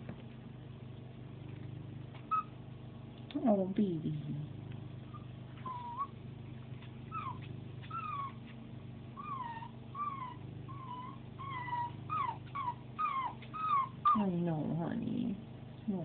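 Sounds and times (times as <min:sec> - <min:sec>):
puppy whining: 0:01.5 - 0:02.6, 0:05.0 - 0:14.4.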